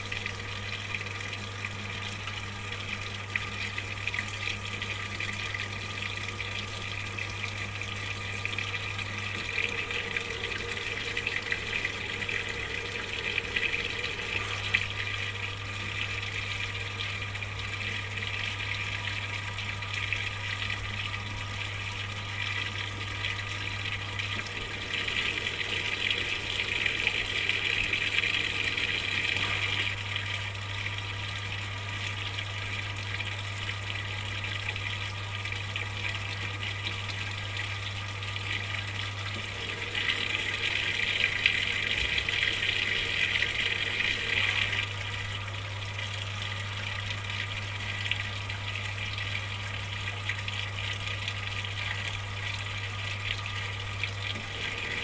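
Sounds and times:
water pouring into washing machine: 0.0s - 55.0s.

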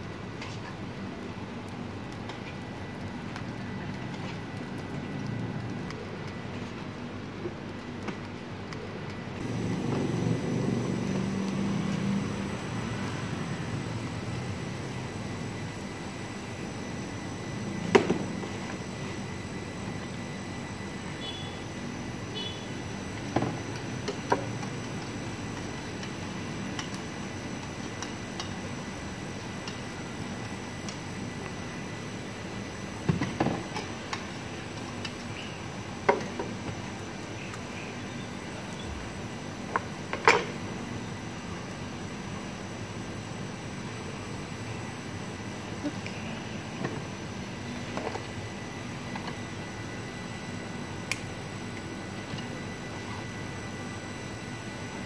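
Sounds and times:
low mechanical rumble: 0.0s - 33.0s
steady background hum: 0.0s - 55.0s.

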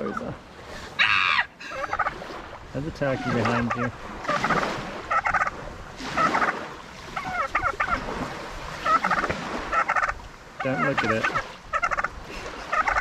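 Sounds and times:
turkey gobbling: 1.0s - 2.1s, 3.2s - 5.6s, 6.2s - 6.6s, 7.2s - 8.0s, 8.8s - 13.0s.

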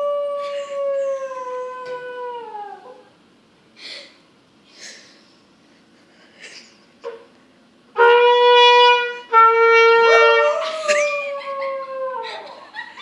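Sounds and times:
trumpet held notes: 8.0s - 10.8s.

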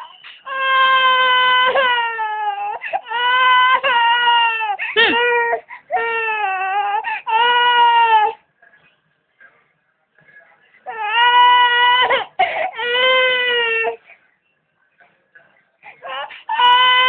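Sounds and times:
baby crying: 0.0s - 8.4s, 10.9s - 14.0s, 16.0s - 17.0s
baby breathing: 7.0s - 7.3s.

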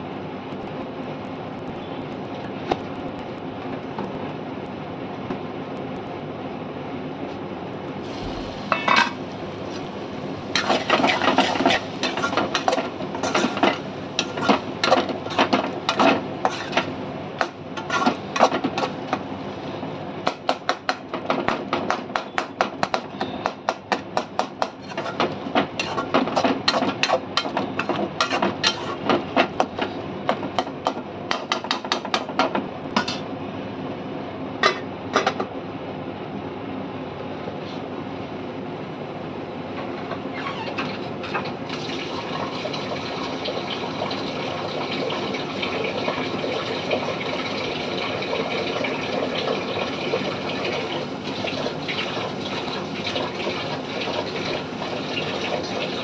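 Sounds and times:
metal ladle scraping a pan: 10.6s - 16.9s, 25.8s - 29.1s.

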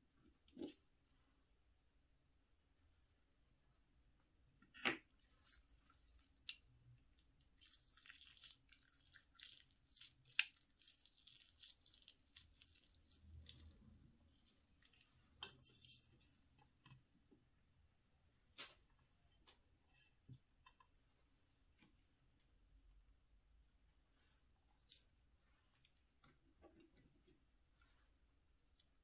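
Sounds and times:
slime squishing: 5.0s - 16.9s, 23.8s - 28.2s.

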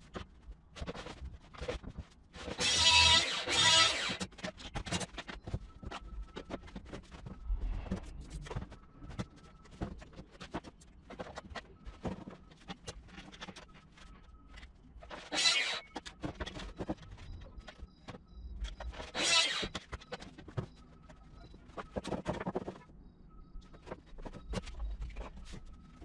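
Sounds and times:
boards and tools clattering: 0.8s - 7.4s, 8.4s - 22.8s
circular saw cutting board: 2.6s - 4.2s, 15.2s - 15.9s, 19.0s - 19.8s.

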